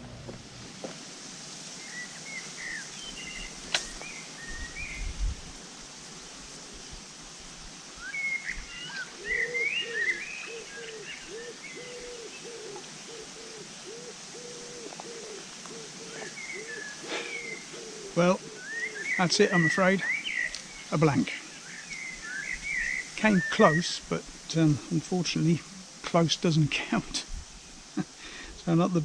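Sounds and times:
birds chirping: 1.8 - 5.3, 8.0 - 29.0
low cooing bird call: 8.0 - 20.8.

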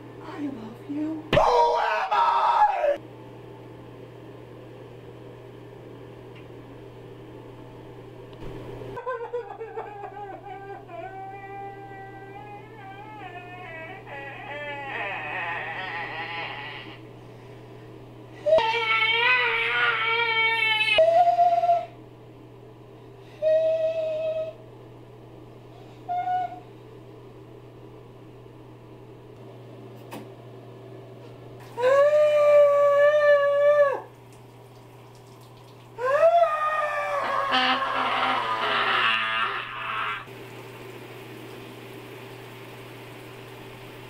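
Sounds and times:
low room hum: 0.0 - 44.0
man crying in whimpering wails: 9.0 - 17.0, 36.0 - 40.3.

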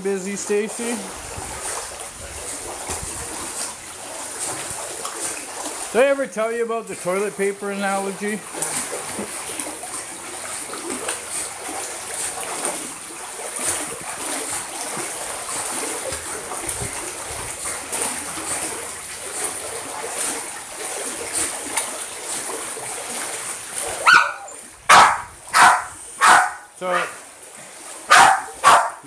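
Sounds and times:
water splashing and churning: 0.0 - 29.0
dog barking: 24.0 - 27.2, 28.1 - 29.0.

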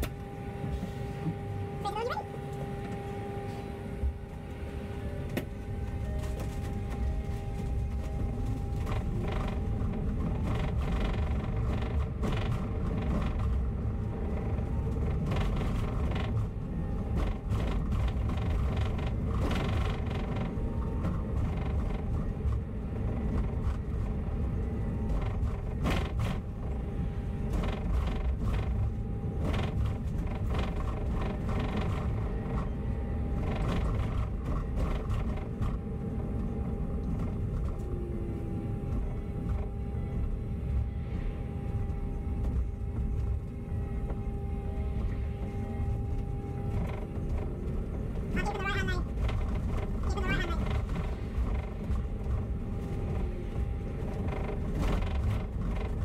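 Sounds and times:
bus engine and road rumble: 0.0 - 56.0
steady hum: 0.0 - 56.0
bus body creaks and rattles: 2.5 - 56.0.

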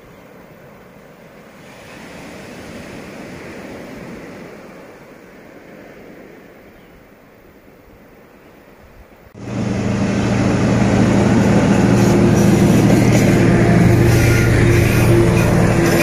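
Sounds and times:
surf washing over rocks: 0.0 - 6.7
wind: 0.0 - 16.0.

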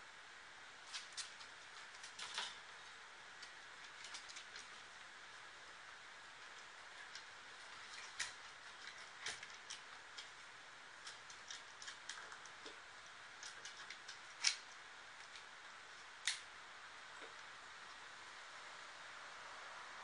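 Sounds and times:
puppy teeth clicking on wire bars: 0.8 - 2.6, 3.4 - 4.9, 6.4 - 16.5.

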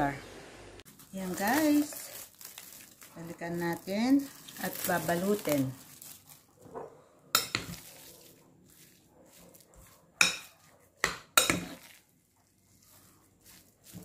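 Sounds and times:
soft stirring of minced meat: 7.3 - 14.0.

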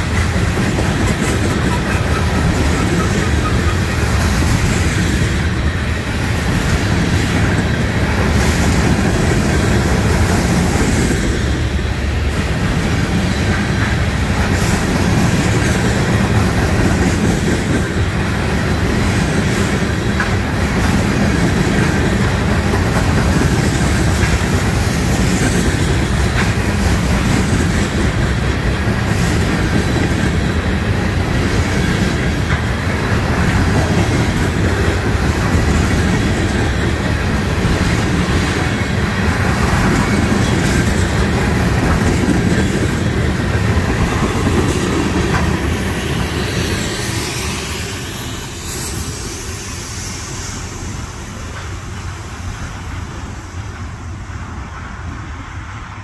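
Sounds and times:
freight cars rolling on rails: 0.0 - 56.0.

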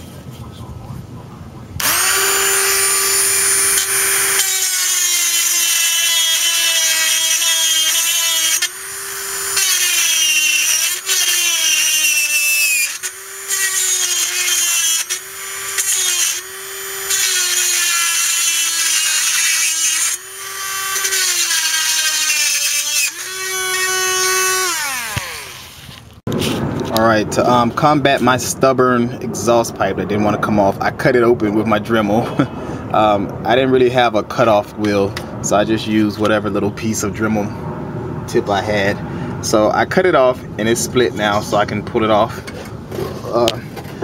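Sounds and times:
rotary tool cutting metal: 1.8 - 26.1.

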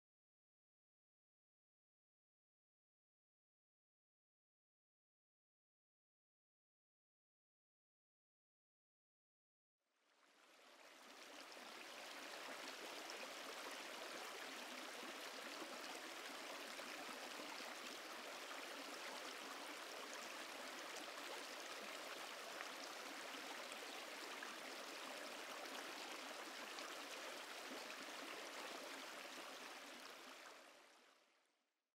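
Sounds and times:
river water flowing: 10.2 - 31.3.

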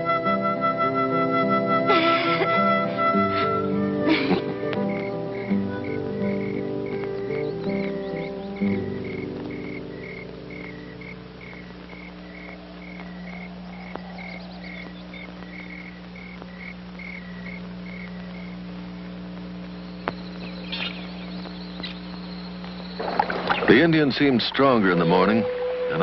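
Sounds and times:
steady low hum: 1.7 - 25.2
insect chirping: 4.6 - 26.0
short bird chirps: 19.8 - 23.7.

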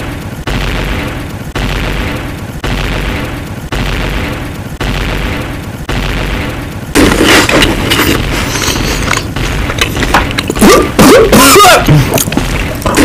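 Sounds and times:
boom sound effect: 0.0 - 7.8.

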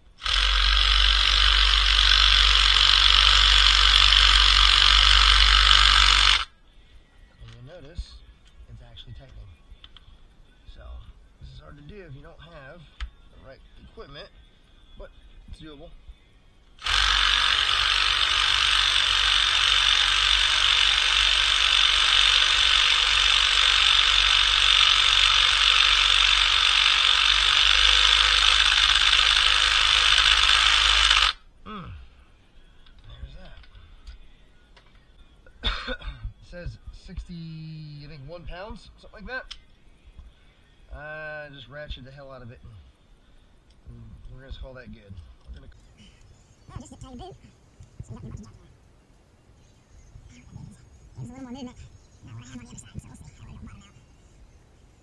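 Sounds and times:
impact driver hammering: 16.8 - 31.4.

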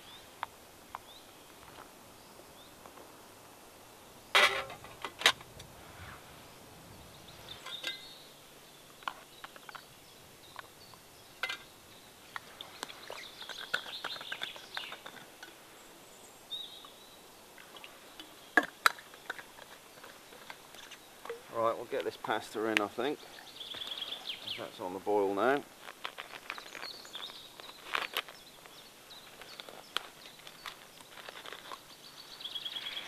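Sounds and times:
camping kit clicking and knocking: 4.3 - 5.7, 9.0 - 9.9, 11.4 - 11.7, 12.3 - 15.6, 18.2 - 22.9, 25.7 - 32.0
birds chirping: 6.0 - 33.0.

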